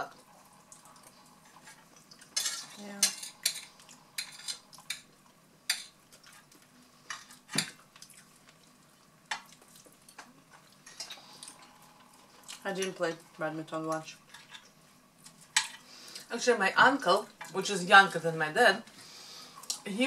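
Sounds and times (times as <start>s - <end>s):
cutlery scraping on plates: 1.5s - 5.1s, 10.8s - 11.2s.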